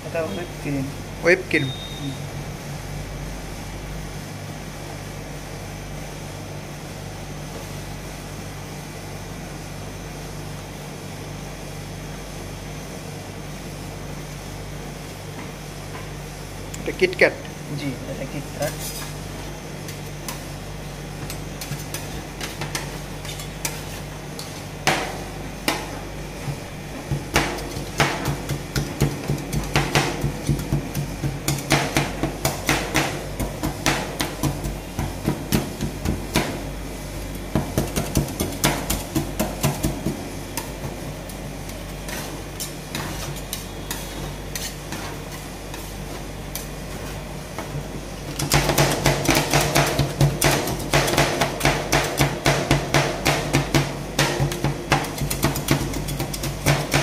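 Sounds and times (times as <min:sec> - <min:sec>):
metal scrapers chopping on cold plate: 0:27.1 - 0:36.6, 0:41.7 - 0:47.2, 0:48.3 - 0:57.0.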